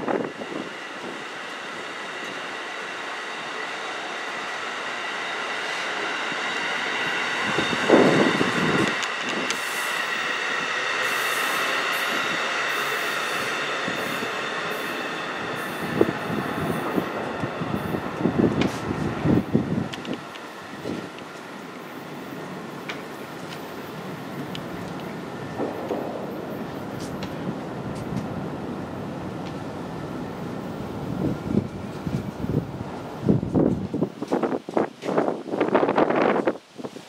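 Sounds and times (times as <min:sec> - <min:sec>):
train wheels rumbling on rail: 0:00.0 - 0:37.0
high ringing wheel squeal: 0:00.3 - 0:08.8.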